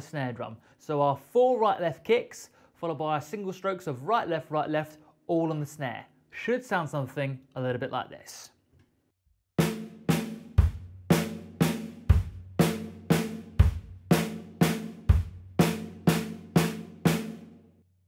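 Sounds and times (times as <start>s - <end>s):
bass drum kicks: 9.7s - 16.8s.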